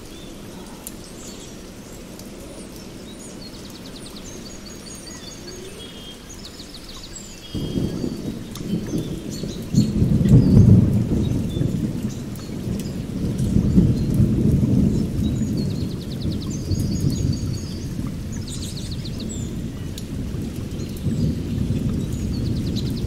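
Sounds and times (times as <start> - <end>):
bird-like chirps and trills: 0.0 - 14.2.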